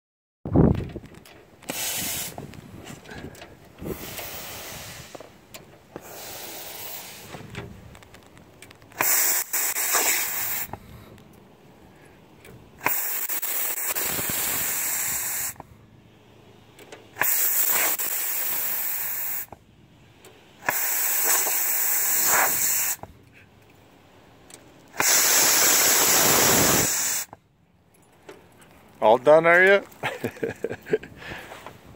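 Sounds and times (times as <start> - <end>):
sprinklers hissing and spraying: 1.6 - 3.1, 3.8 - 11.5, 12.6 - 27.4.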